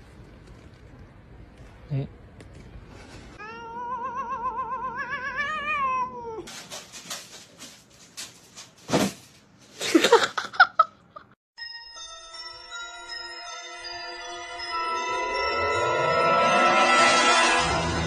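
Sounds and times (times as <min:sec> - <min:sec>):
cat crying: 0:03.4 - 0:06.5
cat meowing: 0:03.4 - 0:06.5
scratching in cat litter: 0:06.4 - 0:09.8
chime-like music jingle: 0:11.6 - 0:18.0.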